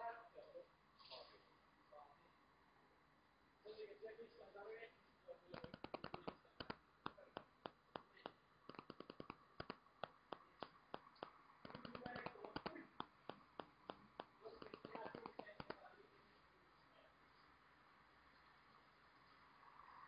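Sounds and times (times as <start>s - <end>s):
sharp clicks and taps: 5.5s - 15.8s.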